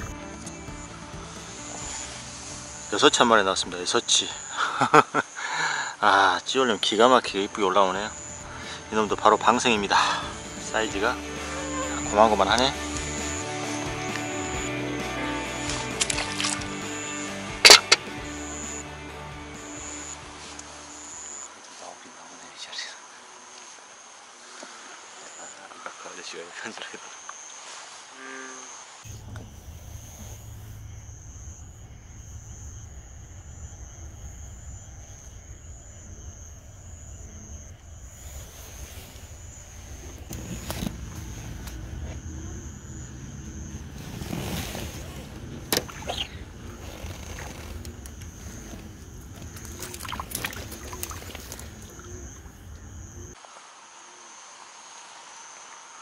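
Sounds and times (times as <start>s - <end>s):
night insects trilling: 0.0s - 56.0s
low rumble: 29.1s - 44.2s.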